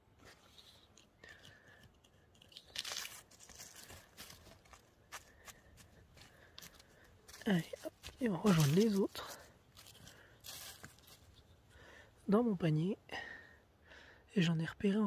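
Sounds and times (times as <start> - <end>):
dry leaves rustling and crackling: 2.5 - 4.9, 7.3 - 11.4.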